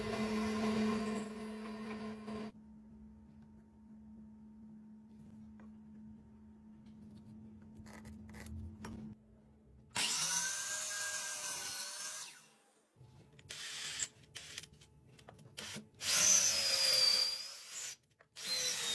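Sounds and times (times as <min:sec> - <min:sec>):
electric drill boring into wood: 0:15.6 - 0:18.9.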